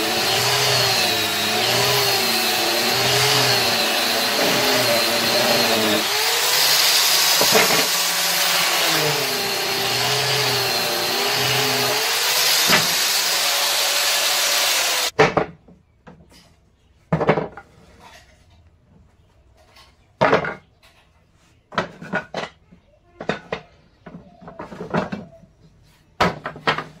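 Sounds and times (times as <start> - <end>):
electric power tool working wood: 0.0 - 15.1.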